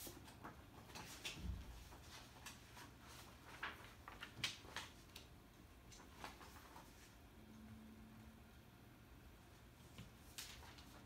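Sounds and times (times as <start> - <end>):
rustling of books and paper: 0.0 - 7.3, 9.8 - 11.0.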